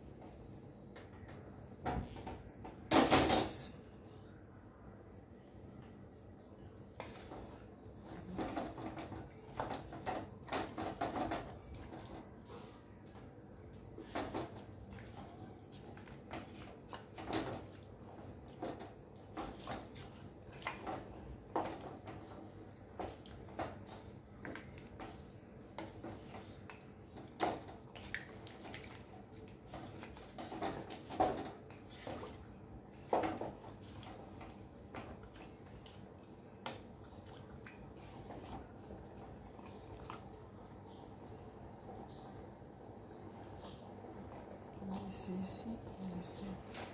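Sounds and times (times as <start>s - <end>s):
stew moving wetly: 6.2s - 43.1s
spatula knocking and scraping pot: 7.0s - 12.7s, 14.0s - 35.9s.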